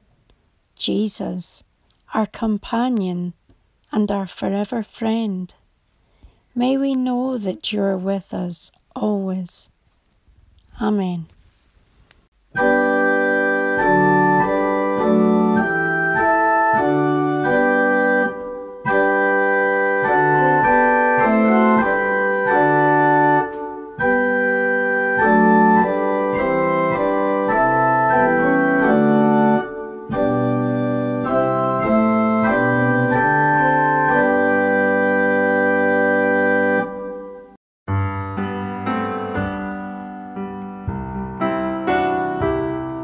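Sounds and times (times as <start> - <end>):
organ playing a psalm tune: 12.6 - 37.5.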